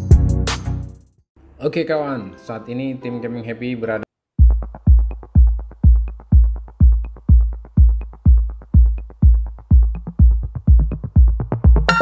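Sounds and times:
drum machine kick drum: 0:04.4 - 0:12.0.

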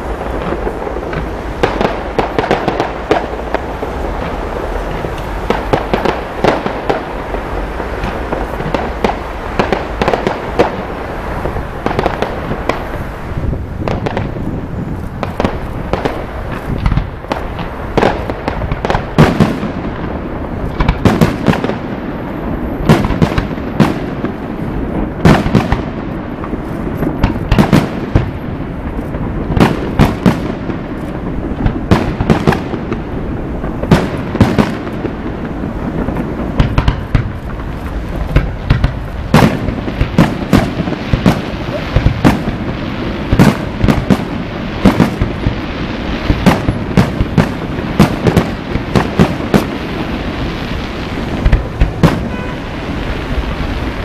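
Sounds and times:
fireworks bursting bangs: 0:00.0 - 0:54.0.

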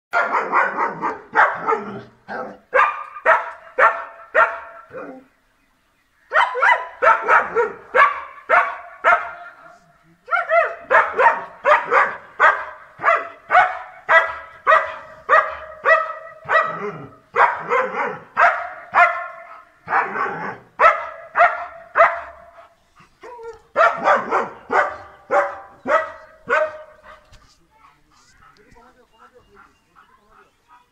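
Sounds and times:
dog barking: 0:00.1 - 0:05.0, 0:06.3 - 0:09.6, 0:10.3 - 0:22.7, 0:23.7 - 0:27.4.

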